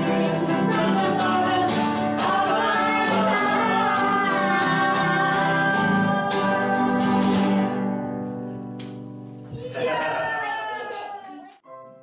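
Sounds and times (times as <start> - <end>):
people singing together: 0.0 - 8.0
strummed acoustic guitar: 0.0 - 9.4.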